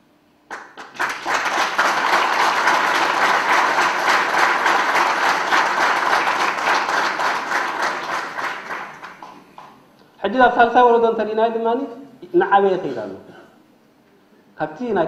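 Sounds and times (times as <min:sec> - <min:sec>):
audience applauding: 0:00.5 - 0:09.7.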